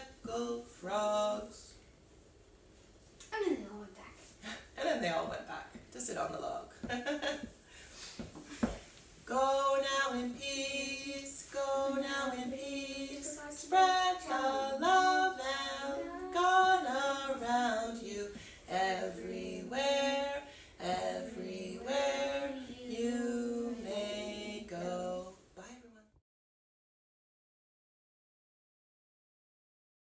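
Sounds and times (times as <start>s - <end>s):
woman singing unaccompanied: 0.0s - 1.7s, 9.2s - 25.9s.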